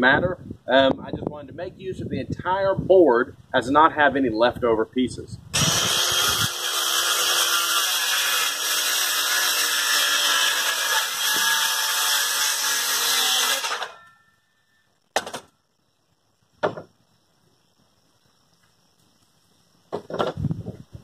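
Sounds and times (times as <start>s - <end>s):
power saw cutting wood: 5.6s - 14.0s.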